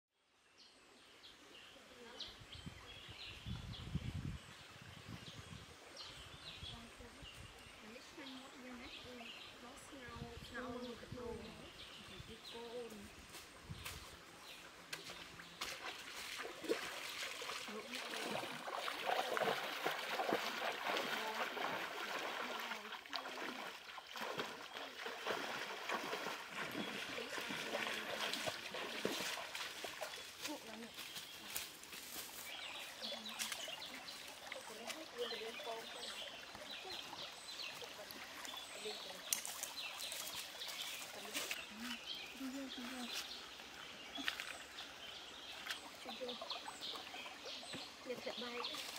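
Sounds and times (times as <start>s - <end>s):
birds chirping: 0.5s - 48.9s
steady outdoor hiss: 0.5s - 48.9s
footsteps splashing in stream: 11.8s - 48.9s
flowing water rushing: 14.2s - 48.9s.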